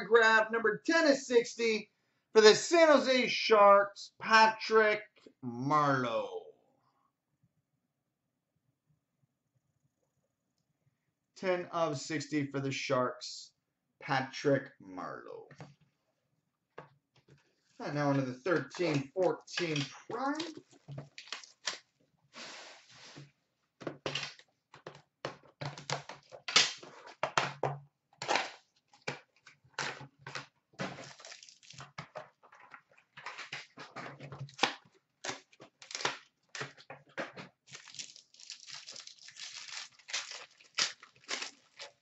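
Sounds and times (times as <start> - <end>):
cards and packs handled: 17.8 - 21.9, 28.2 - 42.0
packaging torn and crinkled: 19.6 - 21.8, 31.0 - 31.8, 35.2 - 36.3, 37.7 - 42.0.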